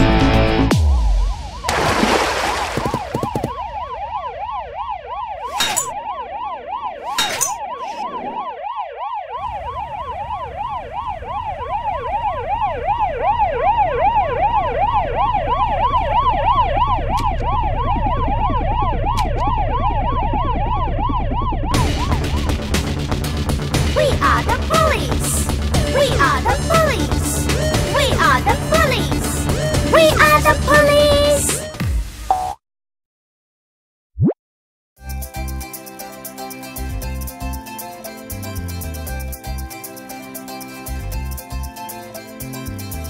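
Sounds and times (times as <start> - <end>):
cartoon police sirens wailing: 2.4 - 22.6, 23.8 - 31.8.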